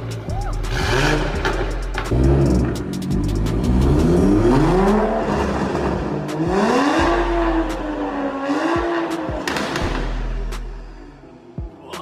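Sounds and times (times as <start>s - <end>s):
car engine revving: 0.0s - 11.6s
sharp exhaust pops: 8.7s - 10.7s.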